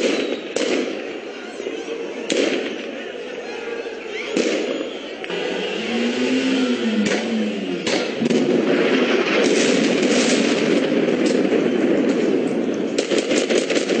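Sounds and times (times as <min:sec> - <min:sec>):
sharp cracks: 0:00.0 - 0:01.0, 0:06.2 - 0:14.0
loud rumble with crackling: 0:04.4 - 0:14.0
bomb explosion: 0:06.7 - 0:14.0.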